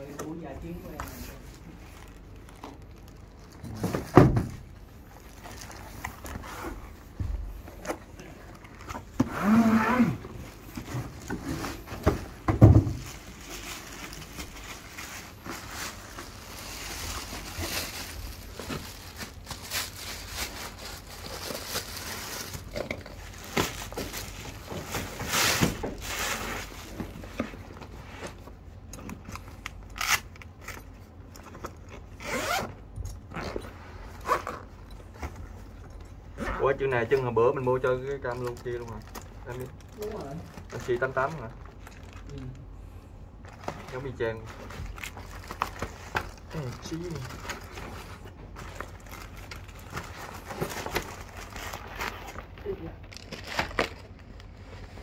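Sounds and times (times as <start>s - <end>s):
plastic wrap crinkling: 0.4s - 4.1s, 4.7s - 7.1s, 9.9s - 27.7s, 36.8s - 42.7s, 43.4s - 55.0s.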